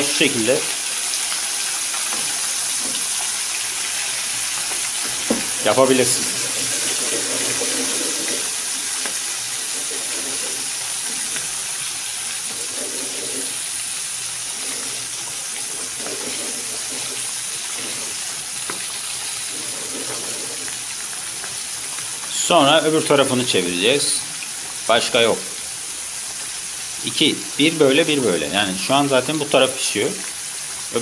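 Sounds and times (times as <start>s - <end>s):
fish sizzling in hot oil: 0.0s - 31.0s
oil popping: 0.6s - 22.6s.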